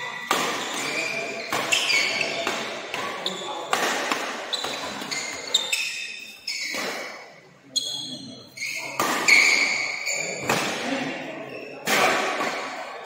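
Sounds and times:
shoes squeaking on court: 0.0 - 7.2, 7.8 - 10.6
rackets striking shuttlecock: 0.1 - 5.2.

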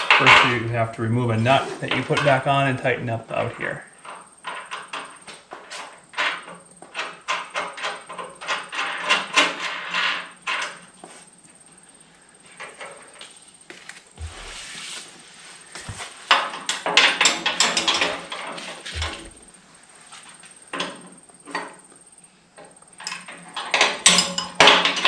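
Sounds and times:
dull bumps: 14.2 - 16.2, 18.8 - 19.6.

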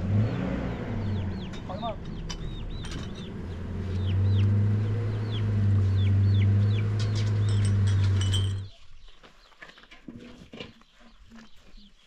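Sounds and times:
loud low hum: 0.0 - 8.7
chickens cheeping: 0.1 - 9.9.

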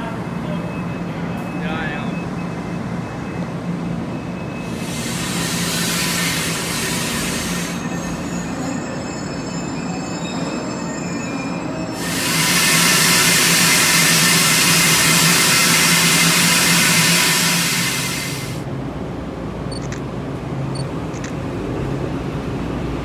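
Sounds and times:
train low hum: 0.0 - 23.0
wheel squeal: 4.2 - 18.5
loud steady hiss: 4.8 - 7.9, 12.0 - 18.6.

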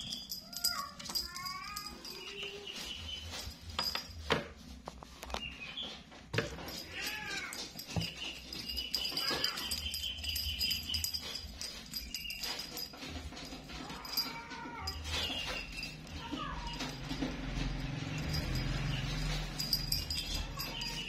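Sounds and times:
cat meowing: 6.8 - 7.6.

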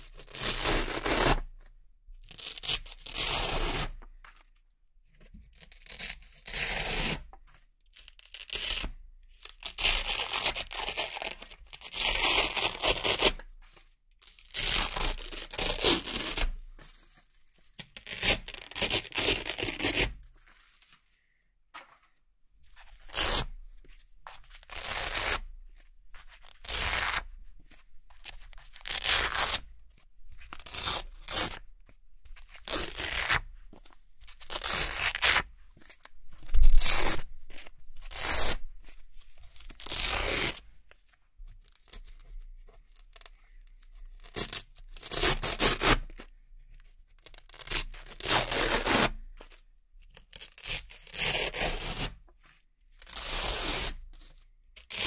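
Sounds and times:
velcro ripping: 0.1 - 1.4, 14.4 - 16.5, 18.0 - 20.1, 23.0 - 23.5, 24.7 - 25.5, 26.5 - 27.3, 28.7 - 29.6, 30.5 - 31.6, 32.6 - 33.4, 34.4 - 35.4, 36.5 - 37.3, 38.0 - 38.6, 39.6 - 40.6, 44.2 - 46.1, 47.3 - 49.2, 50.3 - 52.1, 53.0 - 54.0.

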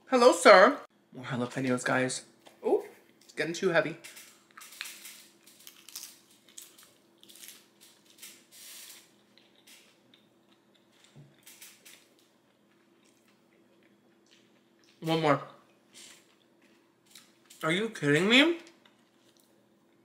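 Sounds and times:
tortilla chip crunching: 4.0 - 15.0.

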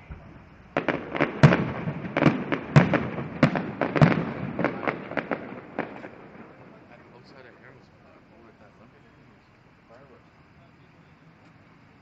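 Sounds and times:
fireworks bursting: 0.0 - 12.0.

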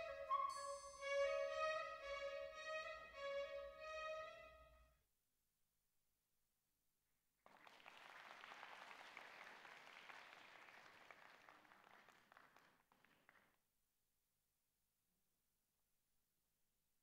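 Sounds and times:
audience applauding: 7.5 - 13.5.

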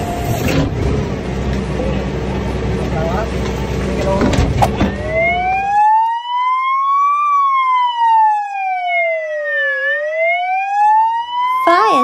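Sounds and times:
truck engine rumble: 0.0 - 5.8
fire truck siren wailing: 4.6 - 12.0.

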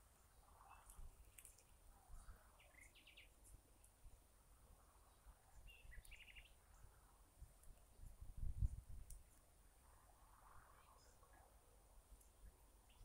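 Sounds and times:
bird chirping: 0.2 - 3.6, 5.0 - 6.9, 12.2 - 13.0
wind rumble on microphone: 0.3 - 11.6.

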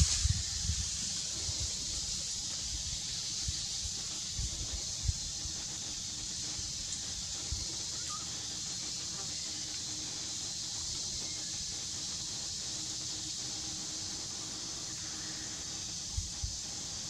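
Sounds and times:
high-pitched forest ambience hiss: 0.0 - 17.0
faint chirp: 5.8 - 12.1.

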